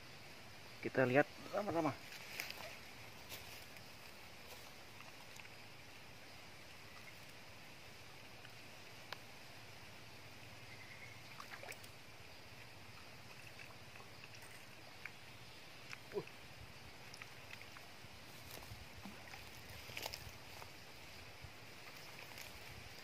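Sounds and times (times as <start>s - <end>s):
faint outdoor background hiss: 0.0s - 23.0s
soft sharp ticks: 8.4s - 9.3s.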